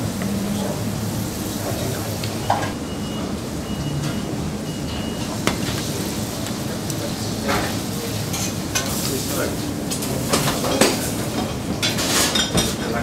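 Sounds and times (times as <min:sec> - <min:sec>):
food sizzling: 0:05.1 - 0:11.4.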